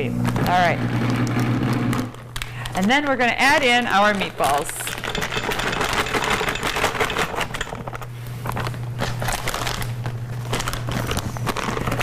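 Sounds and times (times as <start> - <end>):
plastic bag crinkling: 7.7 - 12.0.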